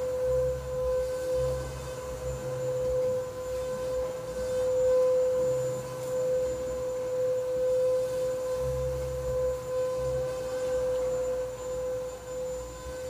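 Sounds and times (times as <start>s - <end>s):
steady high-pitched electronic tone: 0.0s - 13.0s.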